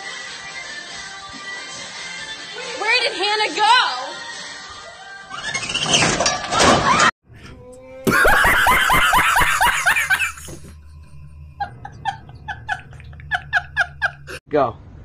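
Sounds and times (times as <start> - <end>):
man laughing hysterically: 8.1 - 10.7, 11.6 - 14.4.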